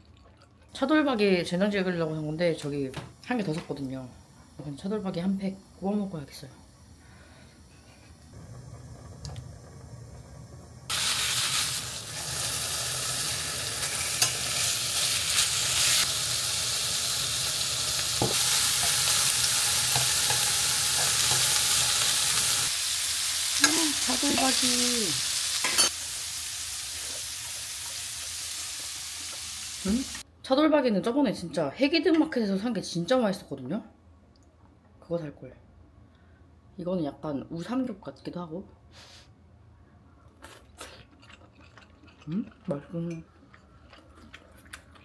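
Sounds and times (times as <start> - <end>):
meat sizzling in a pan: 10.4 - 30.2.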